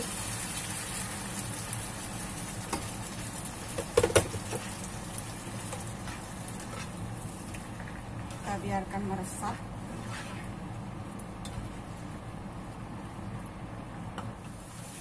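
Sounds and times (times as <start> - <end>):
sauce simmering and sizzling: 0.0 - 8.3.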